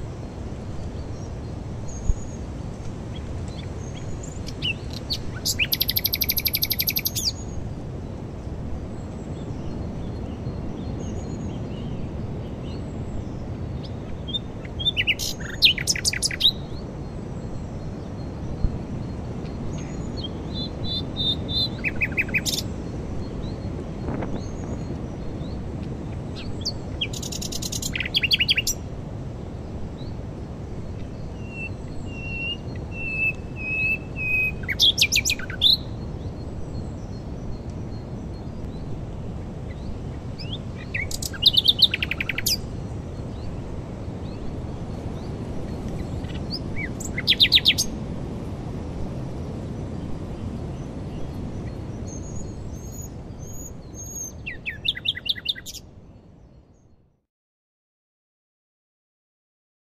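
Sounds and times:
rushing wind: 0.0 - 56.8
nightingale singing: 3.5 - 7.6, 12.7 - 28.9, 30.9 - 38.9, 39.7 - 43.6, 45.2 - 48.0, 51.2 - 55.9.

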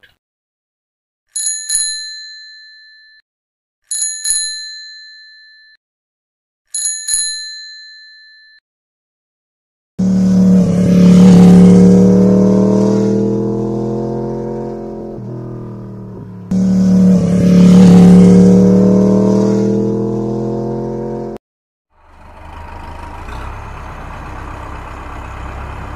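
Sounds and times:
bicycle bell ringing: 1.4 - 3.2, 3.9 - 5.8, 6.7 - 8.6
engine revving: 10.0 - 21.4, 22.2 - 25.9.

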